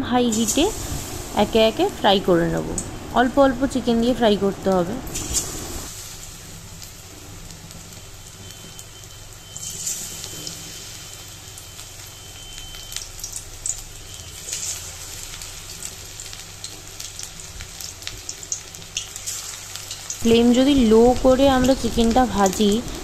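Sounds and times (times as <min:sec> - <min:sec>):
chicken deep-frying in oil: 0:00.0 - 0:23.0
oil popping and crackling: 0:05.0 - 0:23.0.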